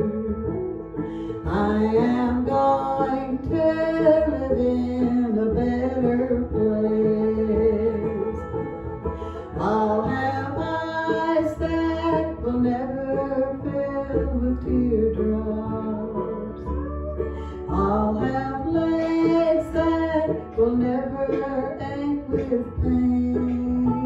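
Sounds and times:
instrumental accompaniment: 0:00.0 - 0:24.0
woman singing gospel song: 0:01.4 - 0:08.2, 0:09.6 - 0:16.1, 0:17.7 - 0:24.0.

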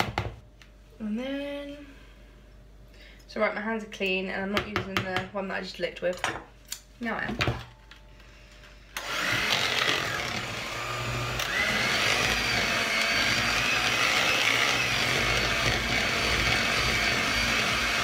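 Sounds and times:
electric hand mixer whisking batter: 0:09.0 - 0:18.0.

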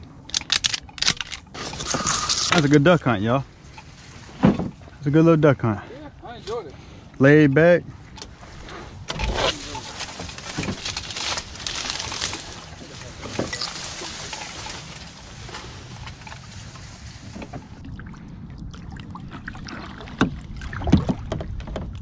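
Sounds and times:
grass scraping along boat hull: 0:00.7 - 0:05.0, 0:08.1 - 0:17.8
knocks on boat: 0:04.4 - 0:04.8, 0:20.2 - 0:22.0.

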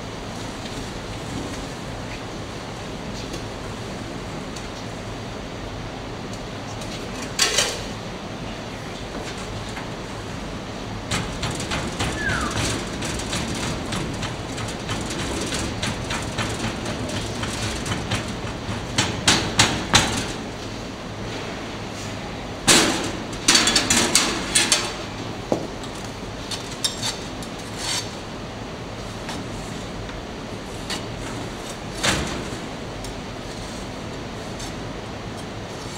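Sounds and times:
sharp knocks and clatter: 0:11.1 - 0:20.4.

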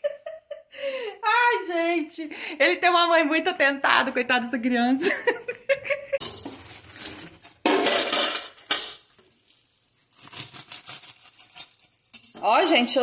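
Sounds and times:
plastic bag rustling: 0:06.2 - 0:12.3.

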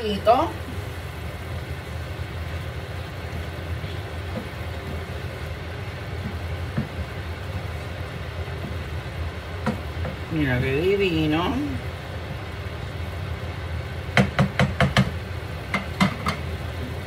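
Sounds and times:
steady low hum: 0:00.0 - 0:14.2
sauce simmering in a frying pan: 0:00.0 - 0:17.0
wooden spoon stirring: 0:03.0 - 0:10.6
spoon knocking against pan: 0:09.6 - 0:10.2, 0:14.2 - 0:16.5.

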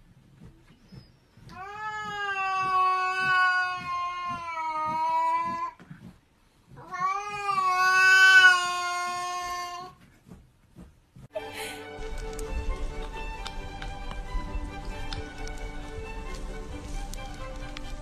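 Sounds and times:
cat yowling: 0:01.6 - 0:05.8, 0:06.8 - 0:10.0.

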